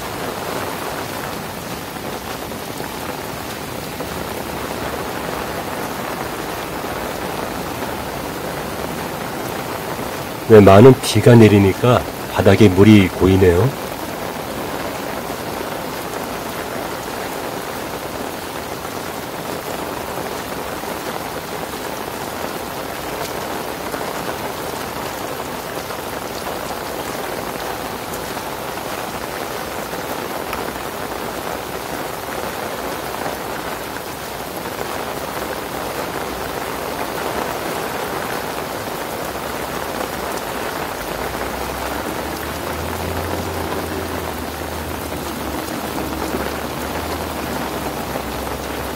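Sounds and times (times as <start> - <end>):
heavy rain on grass and pavement: 0.0 - 48.9.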